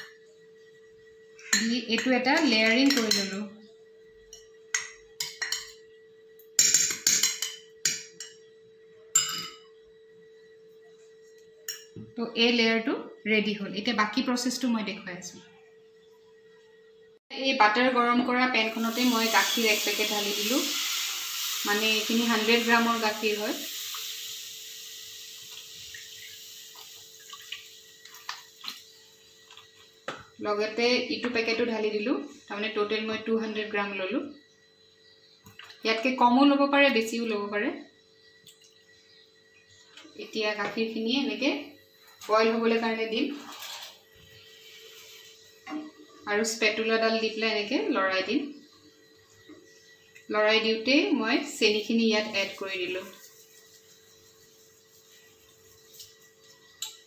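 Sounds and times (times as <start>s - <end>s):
metal spoon tapping a glass: 9.2s - 9.6s
milk pouring into hot pan: 18.8s - 28.9s
liquid dripping: 25.4s - 29.9s.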